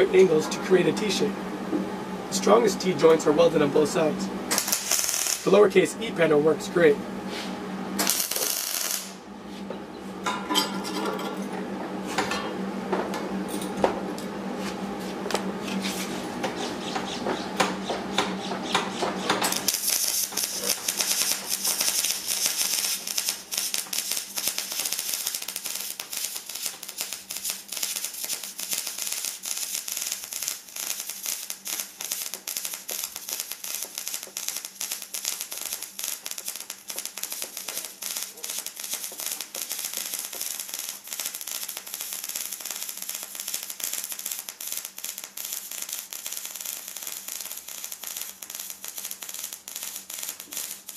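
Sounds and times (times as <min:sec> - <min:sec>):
welding arc crackling: 0:04.5 - 0:05.7, 0:08.0 - 0:09.2, 0:19.3 - 0:50.9.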